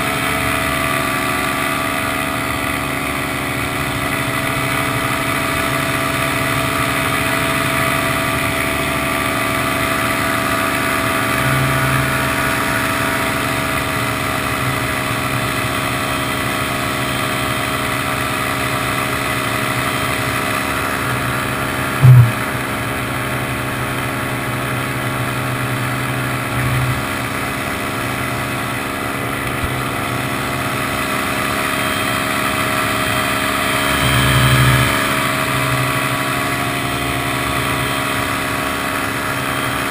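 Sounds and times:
paramotor engine and propeller: 0.0s - 39.9s
loud thump: 22.0s - 22.5s.

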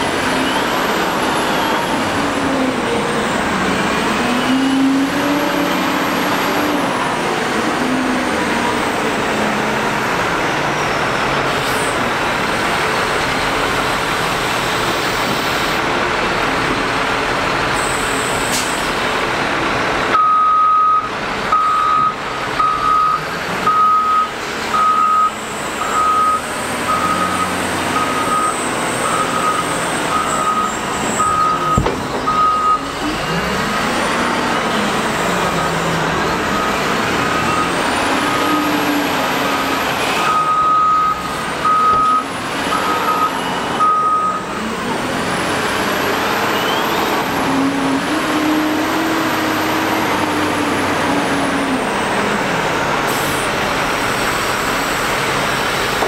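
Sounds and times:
diesel engine under load: 0.0s - 56.0s
reversing alarm beeping: 20.2s - 33.4s, 36.4s - 38.7s, 39.7s - 44.5s.

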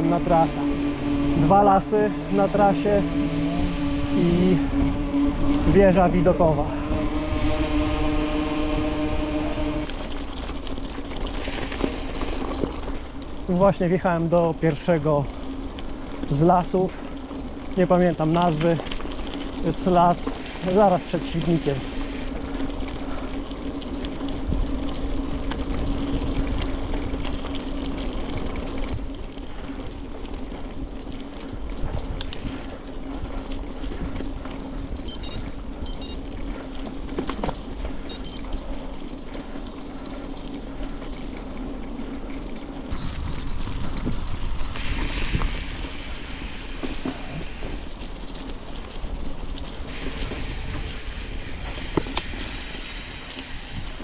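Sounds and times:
bicycle clicks and rattles: 0.0s - 6.7s, 7.3s - 54.0s
low hum: 0.0s - 13.5s
bicycle tyres rolling rumble: 0.0s - 54.0s.

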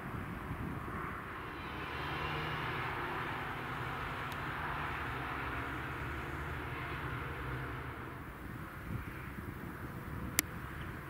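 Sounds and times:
distant engine drone: 0.8s - 9.4s.

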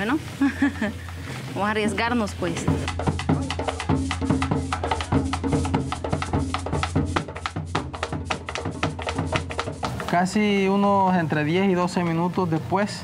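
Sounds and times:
wood-block-like percussion clicks: 2.0s - 10.9s.

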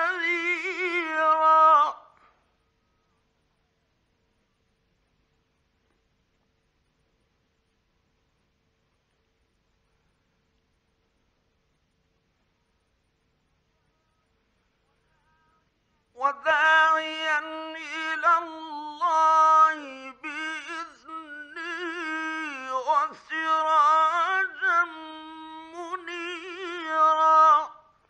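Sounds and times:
man reciting melodically: 0.0s - 2.2s, 15.0s - 28.0s
breaths: 2.1s - 3.3s.

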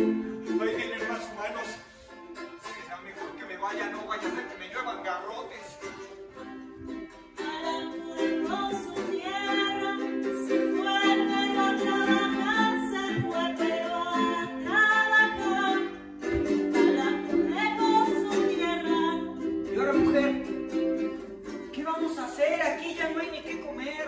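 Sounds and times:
ukulele strumming: 0.0s - 24.0s
woman singing: 7.3s - 24.0s.

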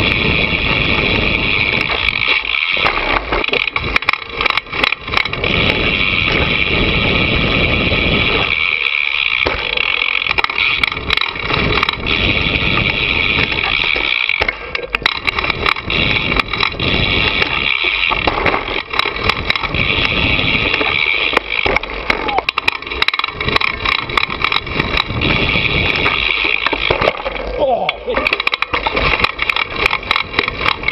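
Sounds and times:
wind rushing over microphone: 0.0s - 2.2s, 3.7s - 8.8s, 10.2s - 13.9s, 15.1s - 21.1s, 22.4s - 26.3s
bike rattling and knocking: 0.0s - 30.9s
bike tyre noise on dirt: 0.0s - 30.9s.

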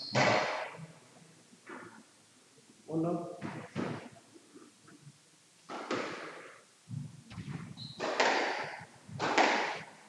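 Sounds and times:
shoe squeaking on court: 0.0s - 0.5s, 7.4s - 8.8s
squash ball hits echoing: 0.0s - 0.8s, 5.7s - 6.6s, 7.4s - 10.0s.

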